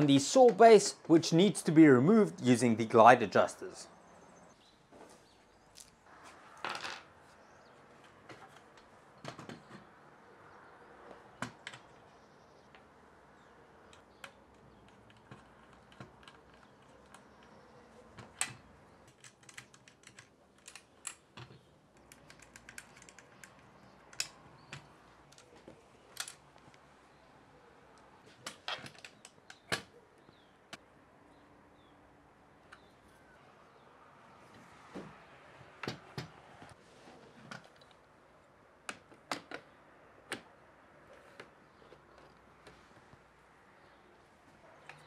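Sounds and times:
small parts clicking and tapping: 13.8s - 26.8s.

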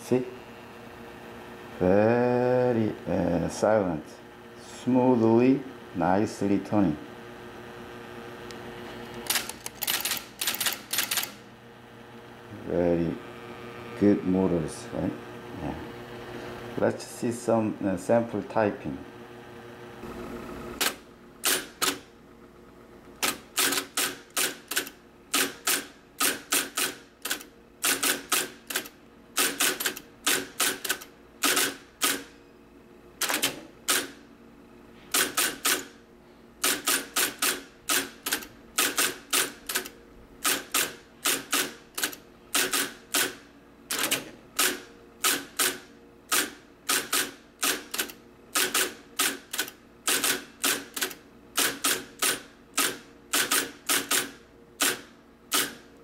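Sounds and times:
typewriter motor hum: 8.4s - 11.5s, 20.0s - 22.1s, 23.0s - 32.4s, 33.2s - 34.2s, 35.0s - 36.0s, 36.6s - 56.0s
typewriter keys clacking: 9.3s - 11.4s.

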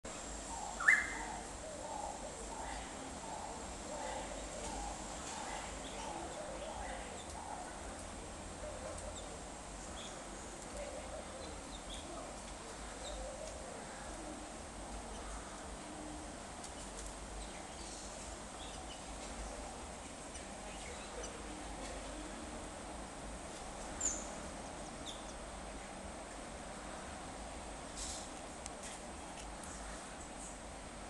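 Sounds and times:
faint high chirps: 0.6s - 1.4s
doves cooing: 10.2s - 16.4s.

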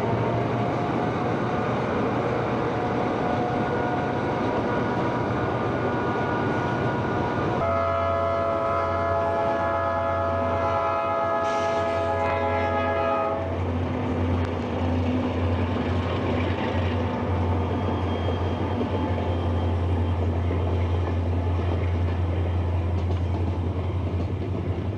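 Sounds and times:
train engines rumbling: 0.0s - 24.9s
locomotive air horn: 7.6s - 13.6s.

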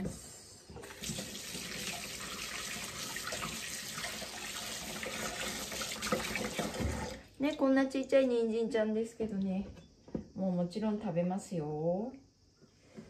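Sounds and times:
tap running into sink: 5.0s - 7.2s.

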